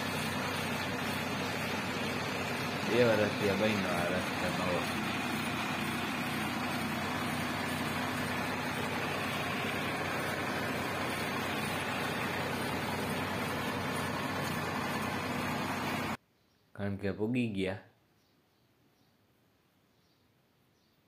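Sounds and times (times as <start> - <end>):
road noise: 0.0 - 16.2
tractor diesel engine running: 0.0 - 16.2.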